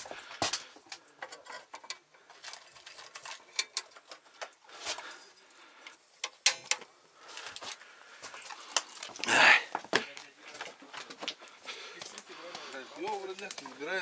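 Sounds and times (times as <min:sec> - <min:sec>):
objects clicking and knocking: 0:00.4 - 0:05.1, 0:05.9 - 0:06.9.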